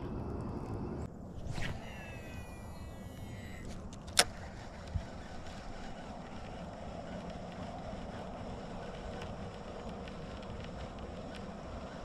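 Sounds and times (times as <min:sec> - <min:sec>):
wind noise on microphone: 0:00.0 - 0:12.0.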